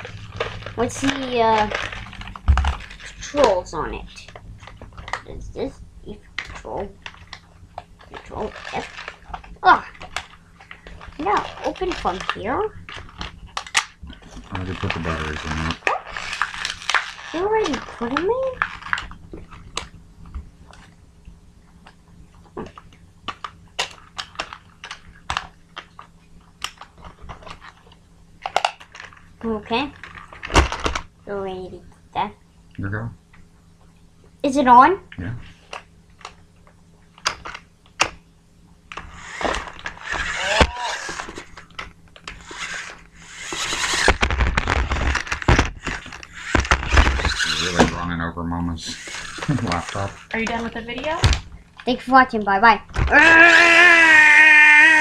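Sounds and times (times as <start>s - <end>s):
small electric motor running: 14.5s - 19.0s, 39.0s - 41.6s, 42.3s - 48.1s, 48.8s - 51.3s
toy truck knocking and clattering: 42.4s - 44.2s, 45.0s - 48.0s.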